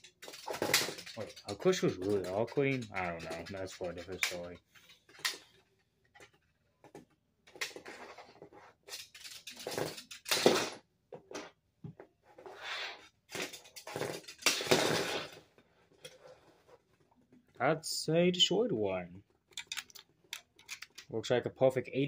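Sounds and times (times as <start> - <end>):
plastic pieces clattering: 0.0 - 5.6, 8.8 - 10.8, 13.3 - 15.4, 19.5 - 21.1.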